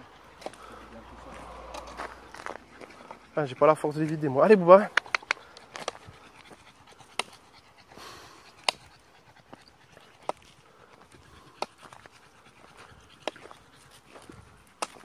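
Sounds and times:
panting breath: 0.0s - 15.0s
footsteps on gravel: 0.4s - 3.1s.

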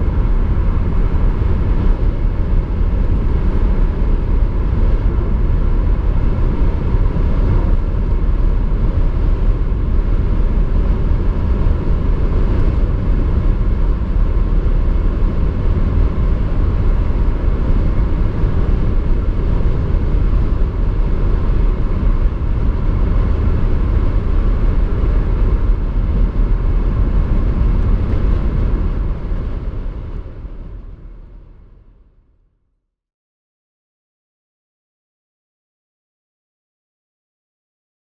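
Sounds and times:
wind and tyre noise in car cabin: 0.0s - 32.6s.

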